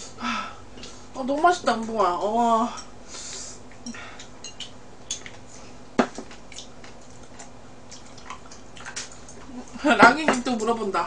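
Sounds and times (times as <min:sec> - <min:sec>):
light eating noises: 0:00.8 - 0:10.8
chopsticks clicking against dish: 0:03.8 - 0:05.4.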